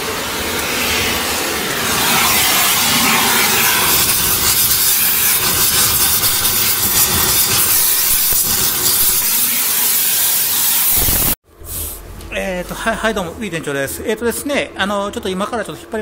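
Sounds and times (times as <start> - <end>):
gas torch hissing: 0.0 - 12.0.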